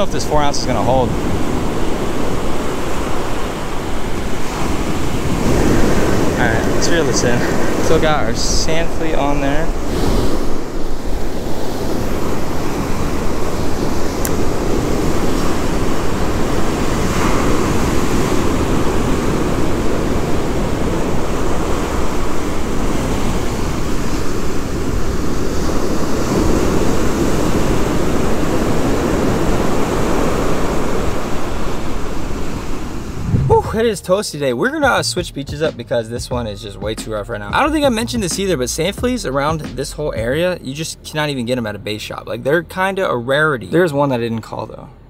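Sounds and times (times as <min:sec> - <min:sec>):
heavy surf breaking: 0:00.0 - 0:43.2
wind buffeting microphone: 0:00.9 - 0:34.0.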